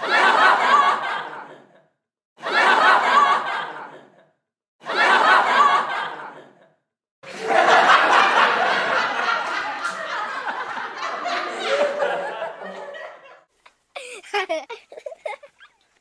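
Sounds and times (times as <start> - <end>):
canned laughter: 14.0 - 16.0.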